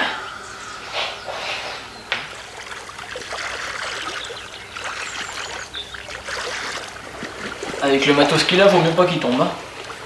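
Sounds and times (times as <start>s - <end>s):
water trickling and splashing: 2.2s - 10.0s.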